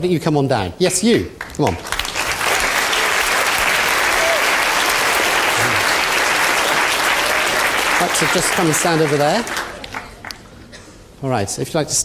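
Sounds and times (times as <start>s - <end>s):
audience applauding: 1.4s - 10.5s.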